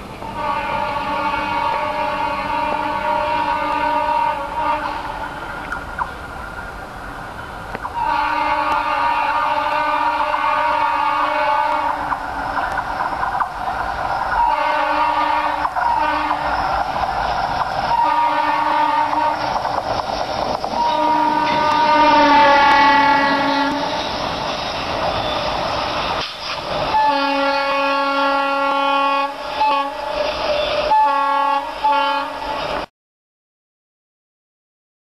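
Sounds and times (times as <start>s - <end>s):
locomotive engine and wheel rumble: 0.0s - 32.9s
diesel locomotive air horn blasts: 0.3s - 5.2s, 8.0s - 12.1s, 14.3s - 16.6s, 17.8s - 19.6s, 20.8s - 24.1s, 26.9s - 32.6s.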